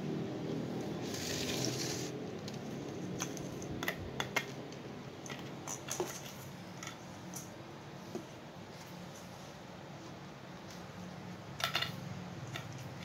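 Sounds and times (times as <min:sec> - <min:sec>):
rustling scrape: 0:01.0 - 0:03.6
toys clicking on tile floor: 0:11.6 - 0:13.0.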